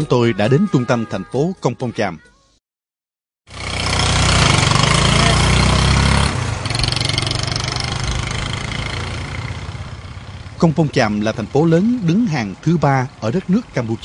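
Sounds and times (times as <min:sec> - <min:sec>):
motorbike engine running: 0:03.5 - 0:12.3
road noise: 0:03.5 - 0:14.0.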